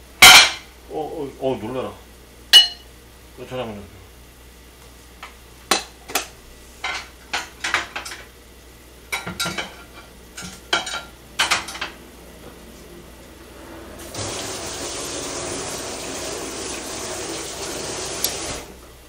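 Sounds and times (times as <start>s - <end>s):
metal spoon clinking on dishes: 2.6s - 2.9s.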